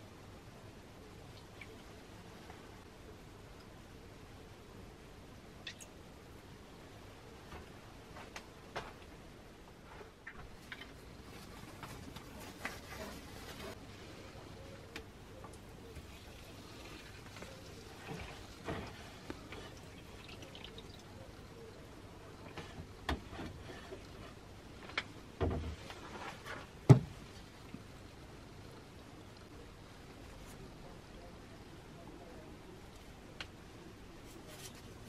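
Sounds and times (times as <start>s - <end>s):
liquid dripping and splashing: 15.5s - 21.1s.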